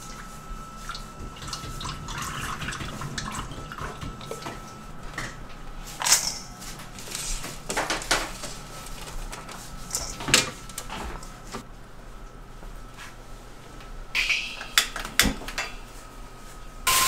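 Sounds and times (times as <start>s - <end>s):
kitchen knocks and clatters: 1.2s - 5.4s, 7.4s - 11.2s, 14.2s - 15.8s.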